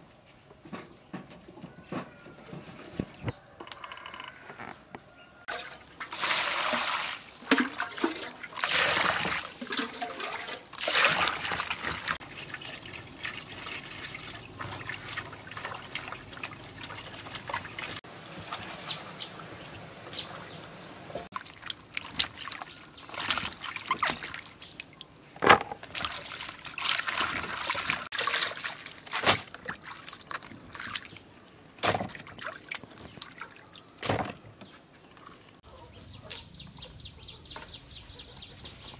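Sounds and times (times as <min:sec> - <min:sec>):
water trickling and splashing: 0:05.5 - 0:35.6.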